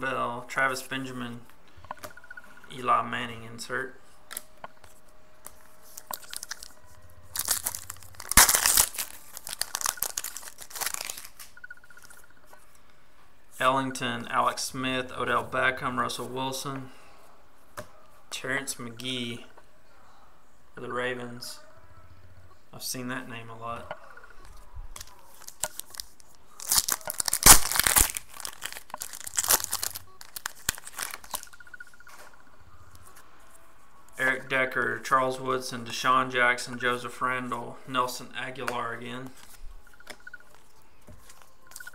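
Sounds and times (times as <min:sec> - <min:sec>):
foil wrapper tearing and crinkling: 0:05.9 - 0:11.5, 0:25.0 - 0:31.5.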